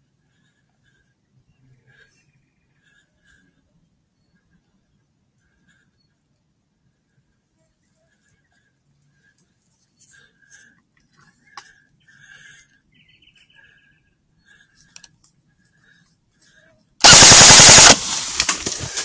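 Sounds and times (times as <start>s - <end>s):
rifle shot: 17.0s - 18.8s
rustle in undergrowth: 18.0s - 19.0s.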